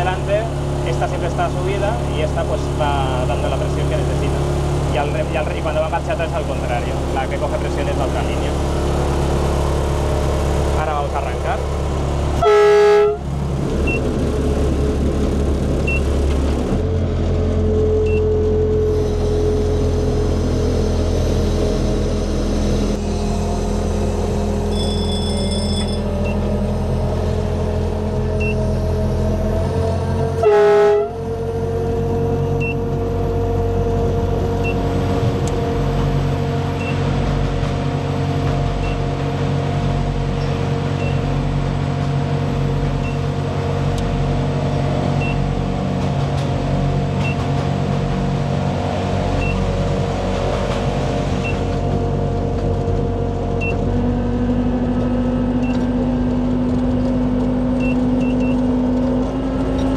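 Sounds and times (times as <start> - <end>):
locomotive engine running: 0.0 - 59.9
miniature locomotive horn: 12.4 - 13.2, 24.7 - 26.0, 30.4 - 31.2
faint high beep: 24.7 - 26.4.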